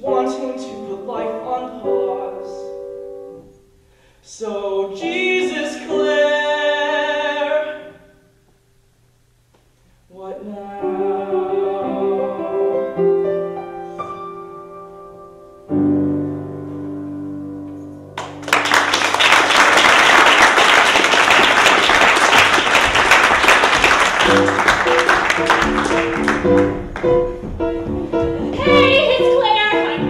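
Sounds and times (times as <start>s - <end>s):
solo piano chords: 0.0s - 3.7s, 10.6s - 18.6s, 22.8s - 30.0s
audience applause: 18.2s - 27.2s.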